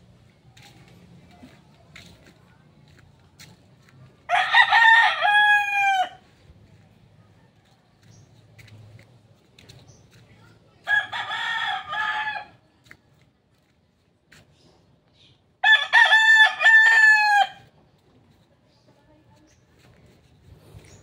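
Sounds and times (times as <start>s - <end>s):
rooster crowing: 4.3s - 6.2s, 10.9s - 12.6s, 15.6s - 17.7s.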